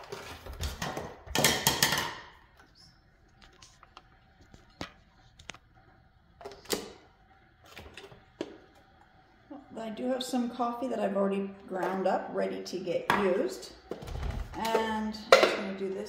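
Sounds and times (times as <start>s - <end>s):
kitchen items clattering: 0.0s - 2.6s, 13.1s - 16.0s.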